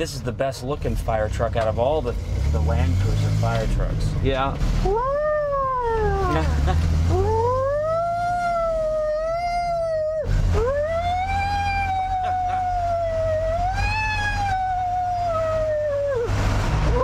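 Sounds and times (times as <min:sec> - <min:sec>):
low engine hum: 0:00.0 - 0:17.0
man imitating a siren: 0:04.8 - 0:17.0.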